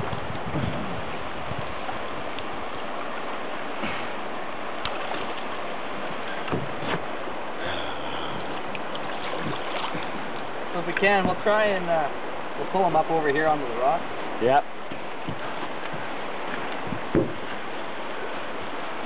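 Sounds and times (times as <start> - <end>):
river current rushing: 0.0 - 19.0.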